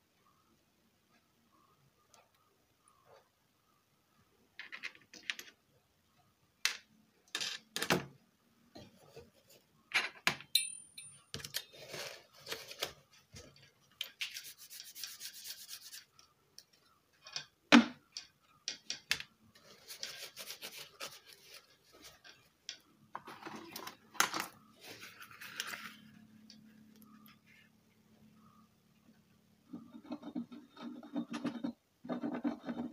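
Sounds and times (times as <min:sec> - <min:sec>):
parts rubbing and scraping: 0:11.0 - 0:16.2, 0:19.5 - 0:27.8, 0:29.6 - 0:32.9.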